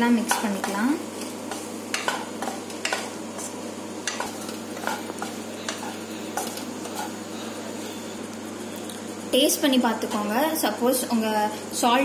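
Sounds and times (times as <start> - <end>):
faint sizzle: 0.0 - 12.0
spatula scraping a pan: 1.5 - 8.2.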